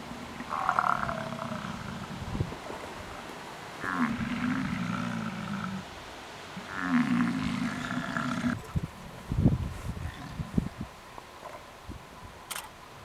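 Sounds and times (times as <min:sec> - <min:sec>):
bison bellowing: 0:00.4 - 0:02.2, 0:06.6 - 0:08.6.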